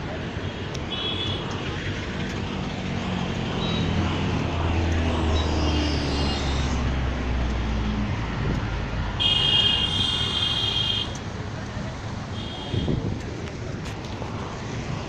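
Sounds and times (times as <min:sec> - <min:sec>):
road traffic engines: 0:00.0 - 0:15.0
high-pitched vehicle horn: 0:09.2 - 0:11.2, 0:12.4 - 0:13.0.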